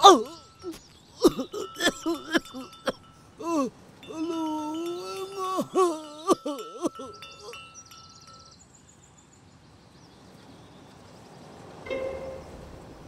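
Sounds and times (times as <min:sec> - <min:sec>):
person calling out: 0:00.0 - 0:07.6.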